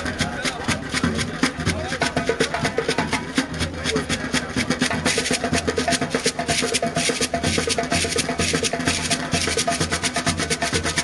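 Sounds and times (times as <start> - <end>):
low beat: 0.0 - 11.0
rapid drum strokes: 0.0 - 11.0.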